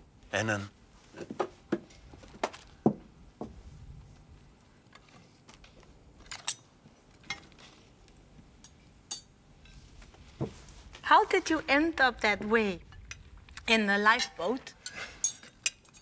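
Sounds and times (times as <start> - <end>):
cutlery clinking on plates: 14.2 - 16.0.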